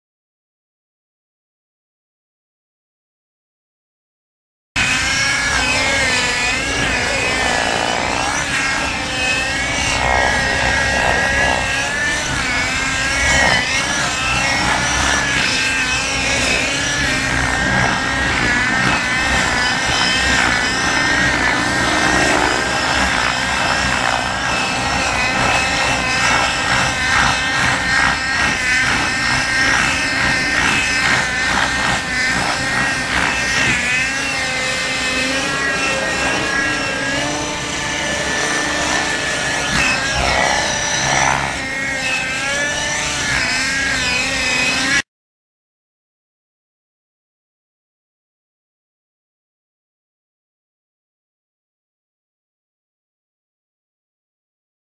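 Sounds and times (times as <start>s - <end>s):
model helicopter engine buzzing: 4.8s - 45.1s.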